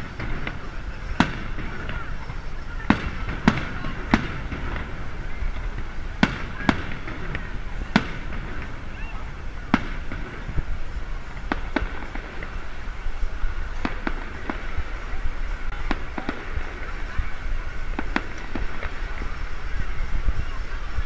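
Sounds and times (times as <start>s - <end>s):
fireworks bursting bangs: 0.0s - 21.0s.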